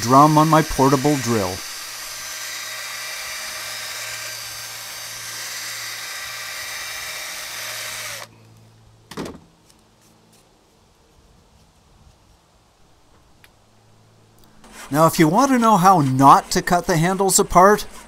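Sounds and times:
drill motor hum: 0:00.0 - 0:08.3.

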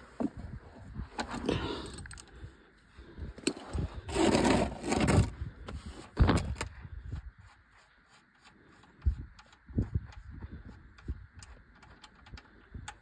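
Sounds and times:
ratchet clicking on drain plug: 0:11.0 - 0:13.0.

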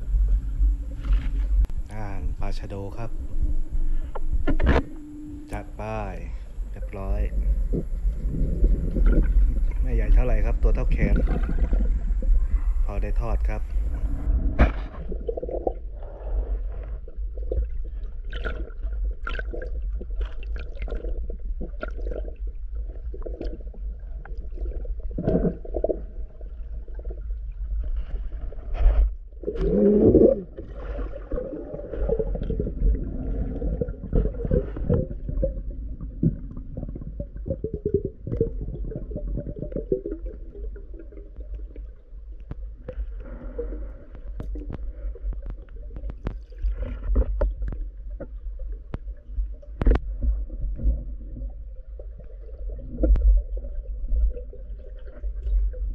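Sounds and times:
underwater low rumble: 0:00.0 - 0:55.9
muffled clicks and knocks: 0:04.1 - 0:05.0, 0:44.2 - 0:48.4
splashing and gurgling: 0:07.7 - 0:12.6, 0:17.2 - 0:41.9.

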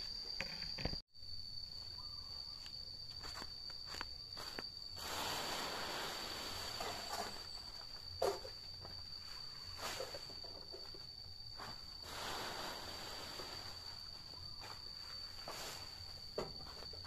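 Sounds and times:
high insect drone: 0:00.0 - 0:17.0
footsteps: 0:02.6 - 0:04.7.

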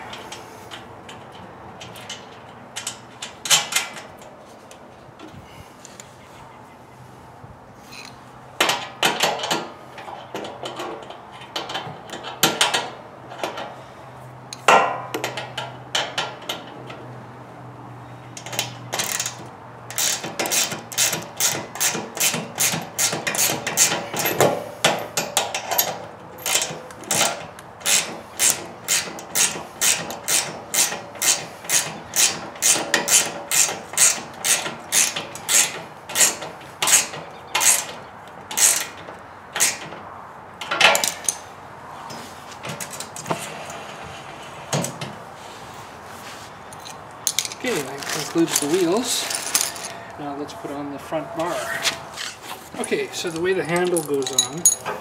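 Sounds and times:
ratcheting wrench clicking: 0:18.4 - 0:24.3, 0:26.4 - 0:37.9, 0:38.5 - 0:39.0, 0:39.6 - 0:39.9.

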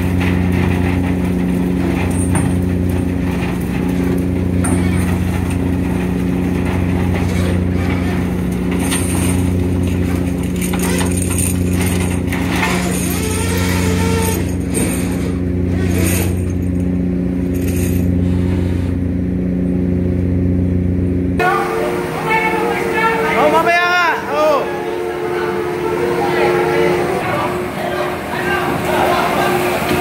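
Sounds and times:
boat engine droning: 0:00.0 - 0:30.0.

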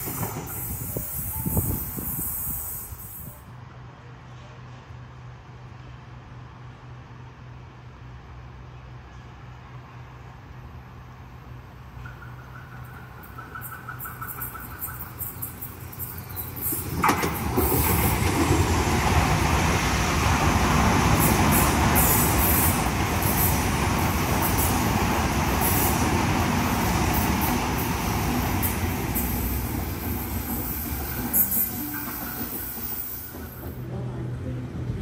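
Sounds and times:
train rumbling past: 0:00.0 - 0:35.0
high wheel squeal: 0:28.6 - 0:33.7.

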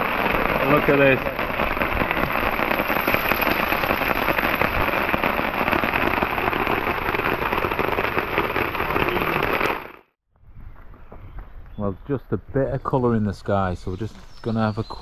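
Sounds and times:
heavy rain on a tarp: 0:00.0 - 0:10.1.

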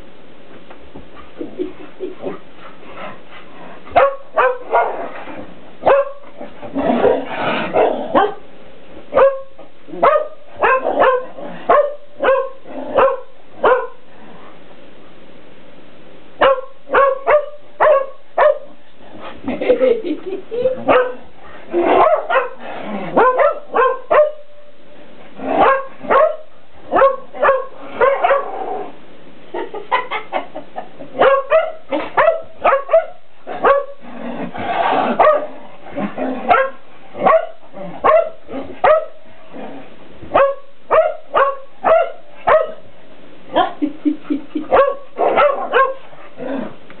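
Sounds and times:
dog barking: 0:04.0 - 0:05.0, 0:05.8 - 0:06.2, 0:07.8 - 0:08.4, 0:09.2 - 0:14.0, 0:16.4 - 0:18.7, 0:20.9 - 0:21.2, 0:21.9 - 0:22.6, 0:23.2 - 0:24.4, 0:25.6 - 0:28.5, 0:31.2 - 0:34.0, 0:35.2 - 0:35.5, 0:36.5 - 0:39.2, 0:40.3 - 0:42.8, 0:44.7 - 0:46.0.

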